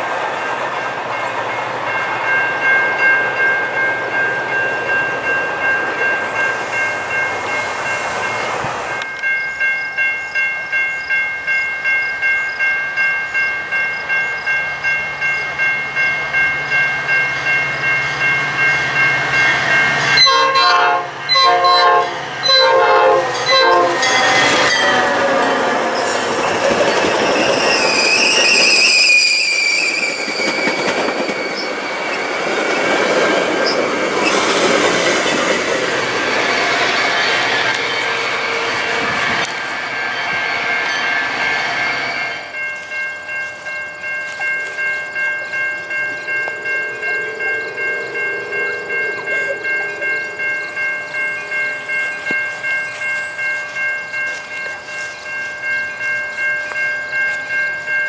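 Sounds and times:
crossing bell ringing: 0:00.0 - 0:58.0
train wheel and rail noise: 0:00.0 - 0:58.0
train horn blasts: 0:20.2 - 0:26.2, 0:37.7 - 0:39.6, 0:46.5 - 0:50.8
wheel flange squeal: 0:23.4 - 0:32.4.

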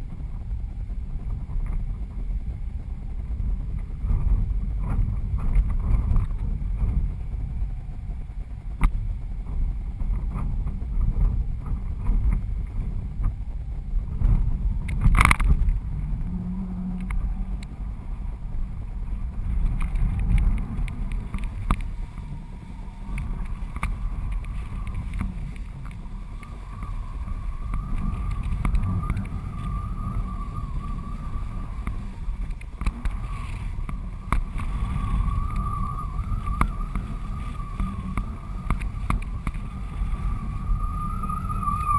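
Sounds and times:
wind buffeting camera: 0:00.0 - 0:41.9
faint high whistle: 0:24.0 - 0:41.9.

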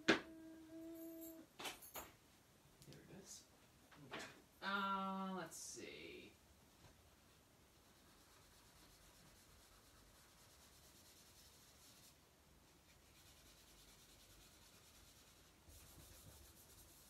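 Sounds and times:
low room hiss: 0:00.0 - 0:17.0
drawing stick scratching on paper: 0:07.8 - 0:12.2, 0:12.9 - 0:17.0.

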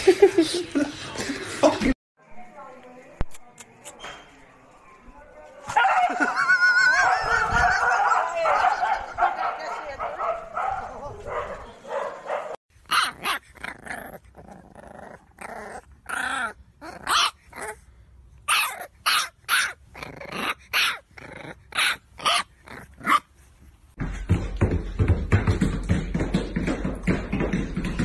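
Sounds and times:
puppy barking: 0:06.9 - 0:13.6, 0:17.0 - 0:17.5, 0:18.5 - 0:21.1, 0:21.7 - 0:23.3
puppy growling: 0:13.0 - 0:17.8, 0:19.6 - 0:23.2.

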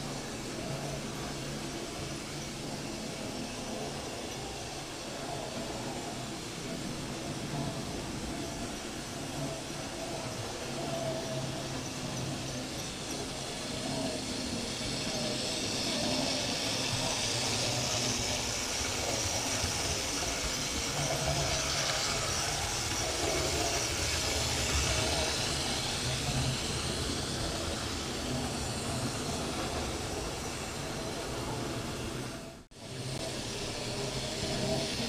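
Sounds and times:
model trains whirring on rails: 0:00.0 - 0:35.0.

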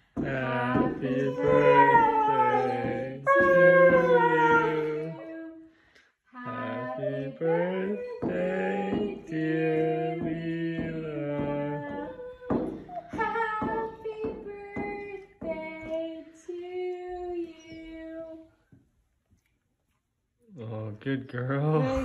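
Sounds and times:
woman singing long notes: 0:00.2 - 0:05.7, 0:06.4 - 0:18.4
dog howling: 0:01.0 - 0:05.5.

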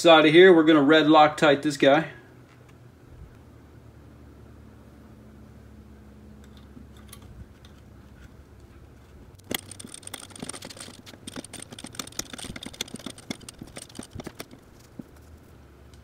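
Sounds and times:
ratcheting hand driver clicking: 0:09.4 - 0:15.2
tool handling clicks: 0:09.4 - 0:15.2.

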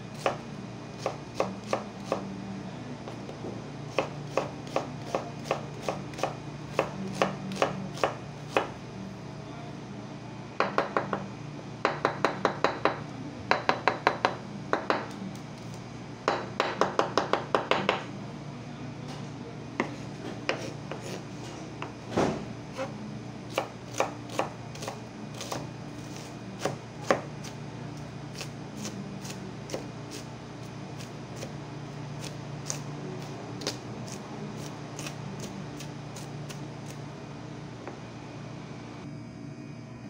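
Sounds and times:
knife chopping on wooden board: 0:01.0 - 0:02.2, 0:03.9 - 0:08.7, 0:19.8 - 0:21.2, 0:23.5 - 0:27.6.

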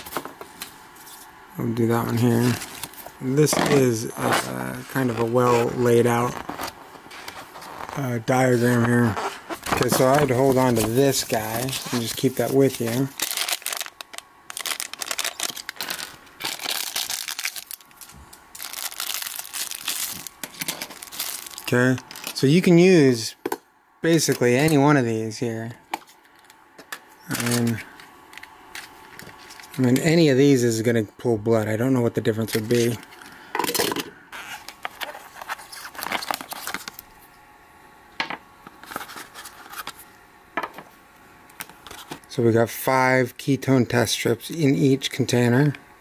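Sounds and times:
plastic packaging crinkling: 0:01.9 - 0:22.7, 0:27.3 - 0:30.0, 0:33.7 - 0:37.3.

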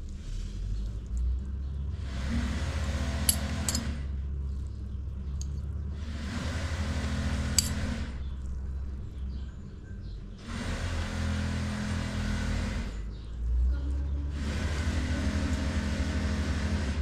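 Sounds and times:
steady low hum: 0:00.0 - 0:17.0
forks clinking on metal: 0:07.6 - 0:07.8.

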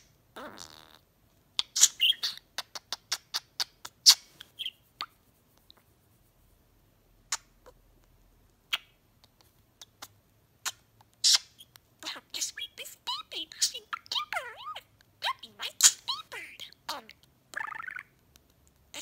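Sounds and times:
budgerigar chirping: 0:01.6 - 0:05.2, 0:07.3 - 0:07.8, 0:08.7 - 0:09.0, 0:09.8 - 0:18.2.

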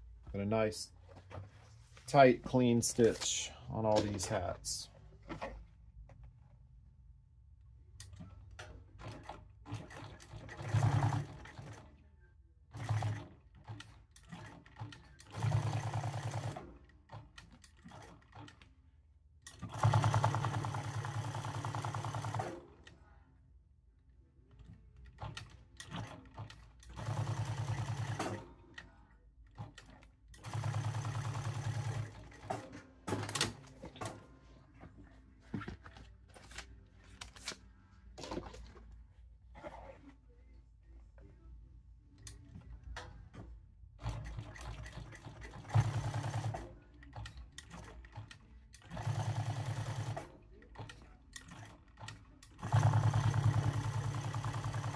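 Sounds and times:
sewing machine stitching: 0:09.0 - 0:11.9, 0:12.7 - 0:18.7, 0:19.5 - 0:22.8, 0:24.6 - 0:28.5, 0:29.5 - 0:33.6, 0:44.0 - 0:54.9.

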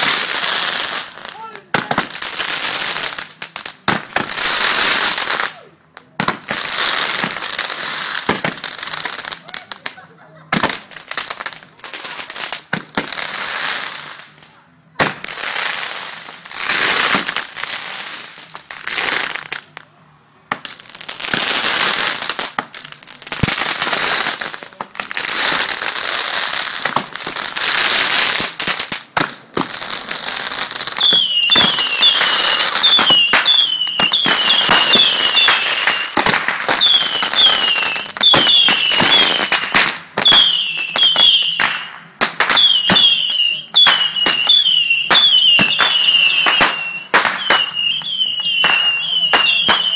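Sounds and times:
fireworks hissing and crackling: 0:00.0 - 0:49.9
fireworks popping: 0:00.0 - 0:49.9
falling firework whistles: 0:30.5 - 0:49.9.

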